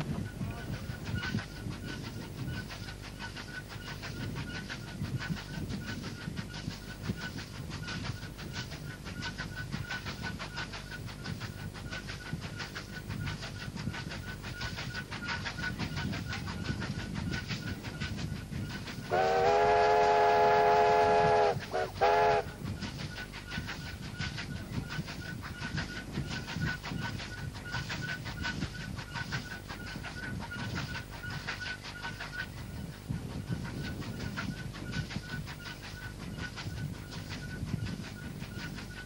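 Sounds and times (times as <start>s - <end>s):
train wheels clattering: 0.0s - 39.0s
steam whistle blasts: 19.1s - 22.5s.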